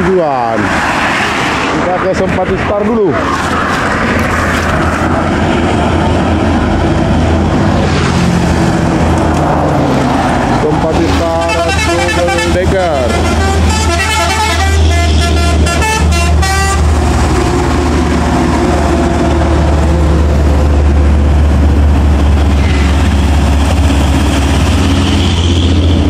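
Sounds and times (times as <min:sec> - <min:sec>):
highway traffic rumble: 0:00.0 - 0:26.0
bus horn: 0:11.4 - 0:17.0, 0:24.5 - 0:26.0.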